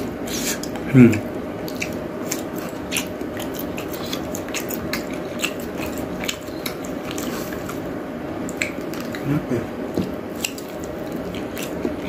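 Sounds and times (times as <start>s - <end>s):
low background hum: 0.0s - 12.0s
person chewing: 0.2s - 12.0s
wet mouth clicks: 8.5s - 9.3s.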